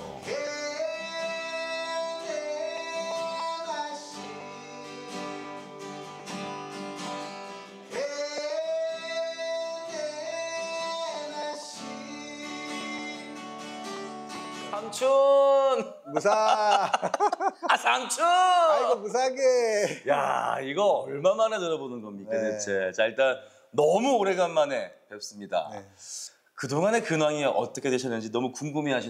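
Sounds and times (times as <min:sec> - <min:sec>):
plucked acoustic guitar: 0:00.0 - 0:15.1.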